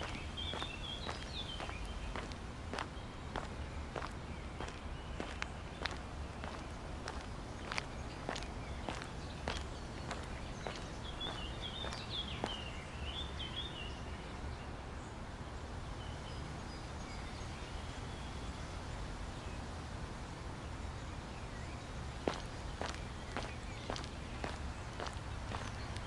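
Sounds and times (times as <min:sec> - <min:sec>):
footsteps on a dirt path: 0:00.0 - 0:12.6, 0:22.2 - 0:26.0
birds chirping: 0:00.0 - 0:15.1, 0:20.9 - 0:26.0.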